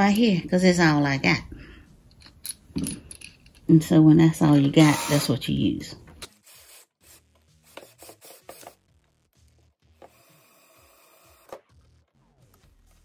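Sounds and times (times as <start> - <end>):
drill driving screw into wood: 4.6 - 5.4, 6.2 - 7.2, 7.8 - 8.8, 10.0 - 11.7.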